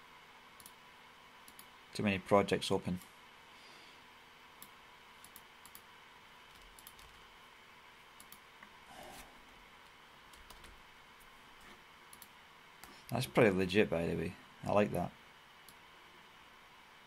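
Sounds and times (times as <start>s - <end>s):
low steady hum: 0.0s - 17.0s
keyboard typing: 6.5s - 7.2s, 10.3s - 10.8s.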